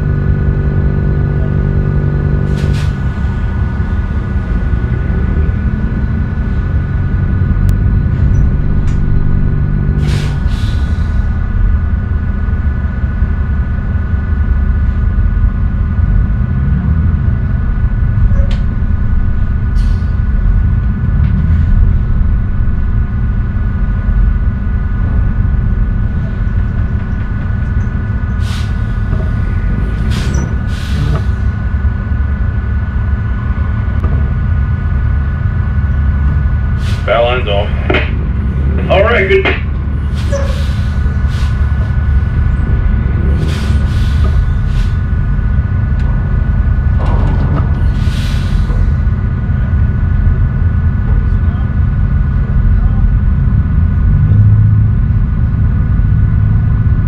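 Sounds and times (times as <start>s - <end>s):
diesel engine rumbling: 0.0s - 57.0s
steady whine: 17.0s - 54.2s.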